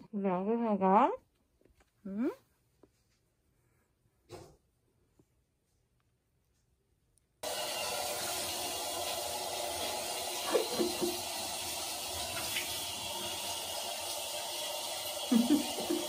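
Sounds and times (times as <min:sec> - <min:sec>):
shower spray hissing: 0:07.4 - 0:16.0.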